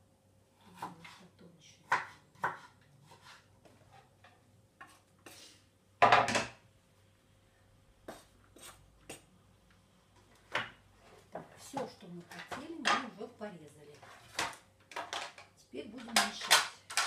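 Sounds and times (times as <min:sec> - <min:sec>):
knife scraping cutting board: 0:01.9 - 0:04.2, 0:08.1 - 0:09.2, 0:13.9 - 0:14.6.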